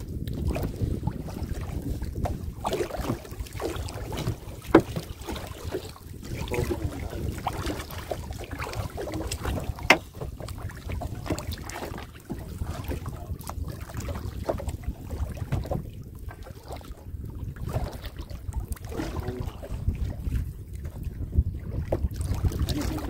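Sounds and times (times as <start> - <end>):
wind rumbling on microphone: 0.0 - 23.0.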